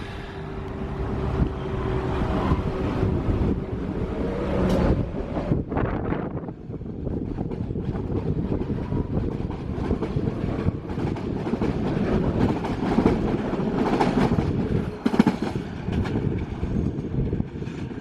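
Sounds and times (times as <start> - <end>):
train running past: 0.0 - 18.0
wind buffeting microphone: 0.3 - 18.0
wheels clacking over rail joints: 7.2 - 18.0.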